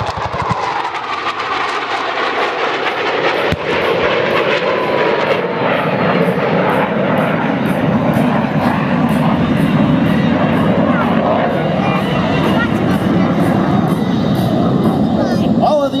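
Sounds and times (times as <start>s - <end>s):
fighter jet roar: 0.0s - 16.0s
explosion bang: 3.4s - 4.6s.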